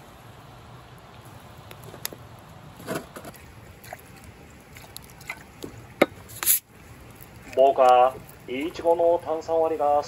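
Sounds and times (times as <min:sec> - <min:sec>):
low steady rumble: 0:00.0 - 0:10.0
wood fire crackling: 0:00.0 - 0:10.0.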